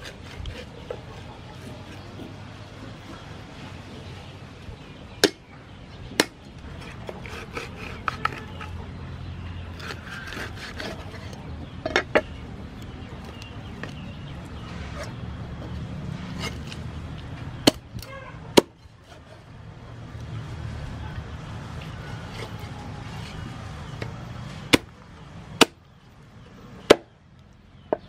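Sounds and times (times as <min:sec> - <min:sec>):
knife cutting and rubbing: 0:00.0 - 0:03.2, 0:06.6 - 0:08.8, 0:09.7 - 0:11.5, 0:16.1 - 0:17.3, 0:22.2 - 0:23.6.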